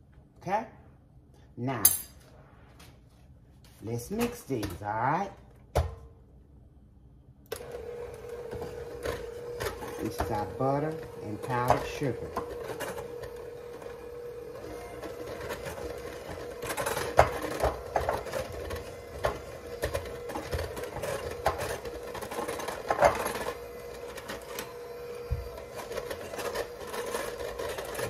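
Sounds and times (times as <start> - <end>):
electric mixer motor whine: 7.5 - 28.0
mixer clacking against bowl: 8.4 - 13.9, 15.0 - 24.6.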